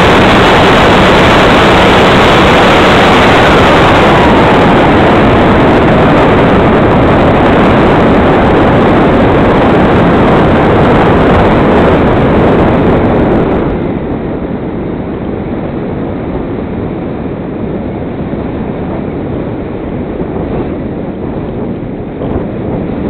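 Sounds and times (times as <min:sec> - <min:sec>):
propeller and wind rush: 0:00.0 - 0:23.0.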